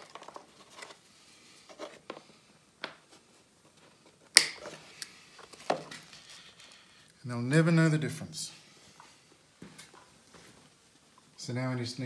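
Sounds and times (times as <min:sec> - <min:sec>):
wire and tool clicks: 0:04.3 - 0:05.1.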